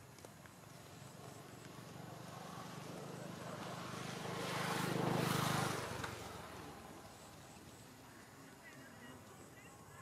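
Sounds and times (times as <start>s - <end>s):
motor vehicle passing by: 0.6s - 8.2s.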